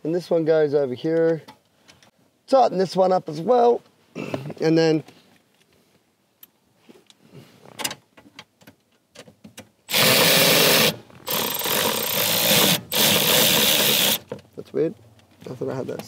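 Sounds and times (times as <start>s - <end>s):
cordless drill spinning: 9.9s - 14.3s.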